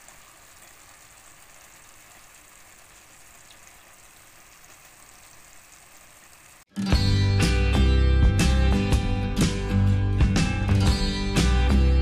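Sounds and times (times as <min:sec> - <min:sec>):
curry sizzling and bubbling: 0:00.0 - 0:06.8.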